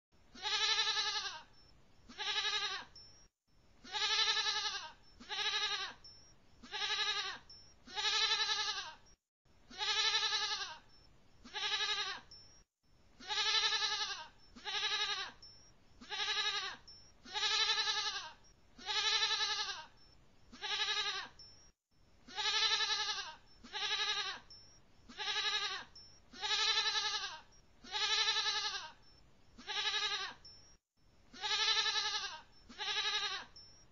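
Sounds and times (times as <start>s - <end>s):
goat bleating: 0.4s - 1.5s, 2.1s - 3.0s, 3.8s - 9.0s, 9.7s - 10.8s, 11.4s - 12.4s, 13.2s - 19.9s, 20.5s - 21.4s, 22.3s - 29.0s, 29.6s - 30.4s, 31.3s - 33.5s.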